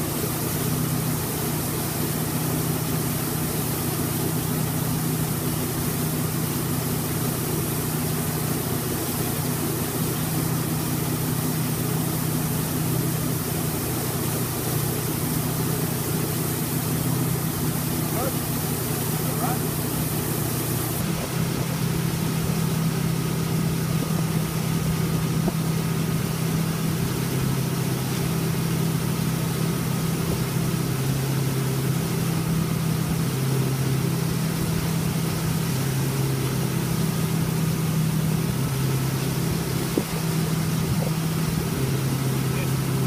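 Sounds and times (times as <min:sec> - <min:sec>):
boat engine running: 0:00.0 - 0:43.0
steady rush of noise: 0:04.1 - 0:25.6.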